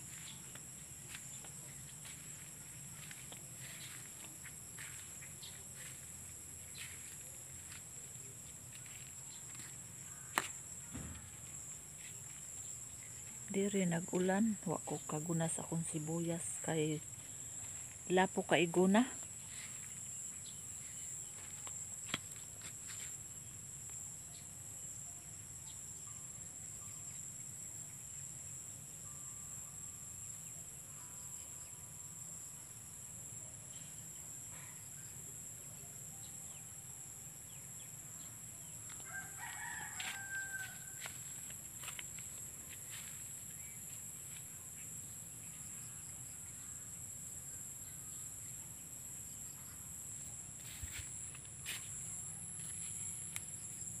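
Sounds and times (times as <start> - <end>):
rooster crowing: 39.0 - 41.2.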